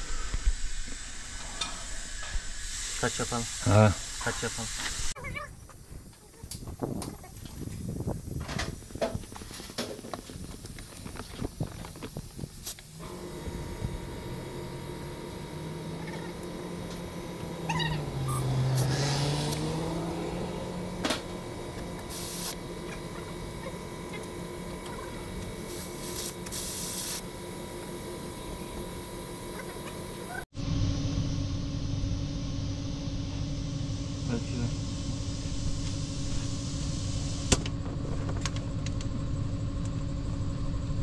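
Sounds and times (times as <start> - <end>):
machine humming: 10.4 - 41.0.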